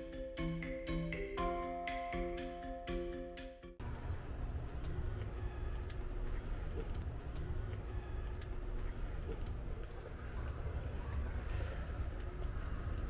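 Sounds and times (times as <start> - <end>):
insects trilling: 3.8 - 13.0.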